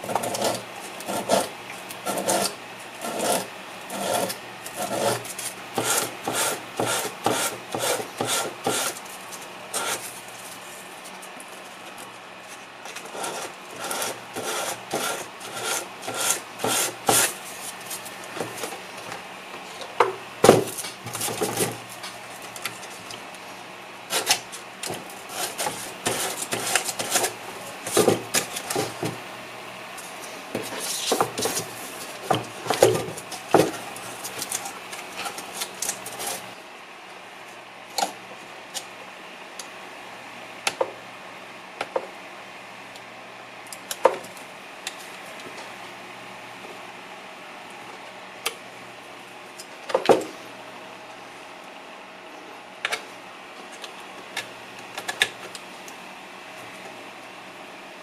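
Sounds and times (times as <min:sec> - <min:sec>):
rasping sanding strokes: 0:00.1 - 0:09.1, 0:09.8 - 0:10.2, 0:13.1 - 0:18.1, 0:25.2 - 0:28.0.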